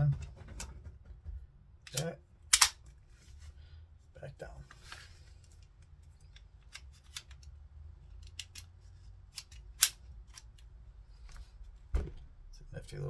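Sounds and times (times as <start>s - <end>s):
metallic pistol clicks: 1.9s - 2.8s, 9.3s - 10.5s.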